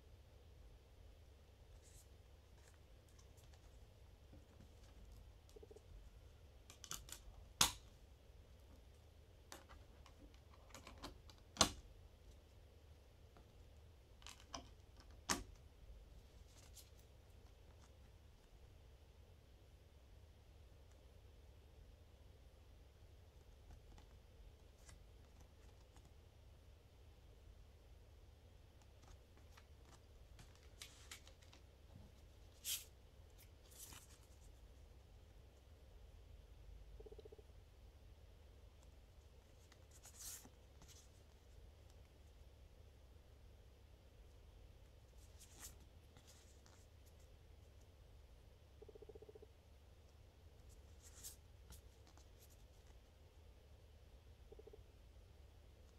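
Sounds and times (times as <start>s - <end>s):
paper rustling: 29.0s - 31.7s.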